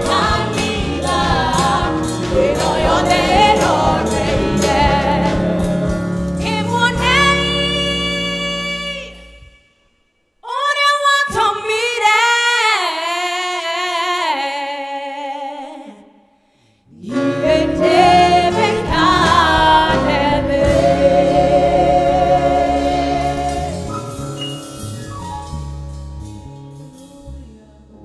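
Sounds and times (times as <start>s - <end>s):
woman singing gospel song: 0.0s - 5.7s, 6.4s - 9.2s, 10.4s - 16.0s, 17.0s - 23.9s
instrumental backing: 0.0s - 9.8s, 17.1s - 28.0s.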